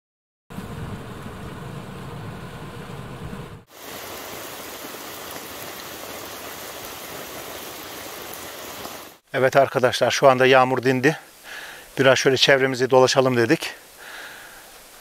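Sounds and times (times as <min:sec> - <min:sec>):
low rumble: 0:00.5 - 0:03.7
rain hiss: 0:00.5 - 0:15.0
wind: 0:00.5 - 0:15.0.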